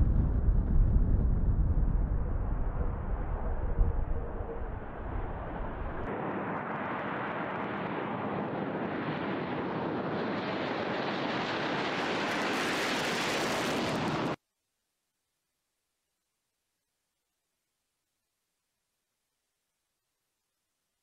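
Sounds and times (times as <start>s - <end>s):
jet engine roar: 0.8s - 14.4s.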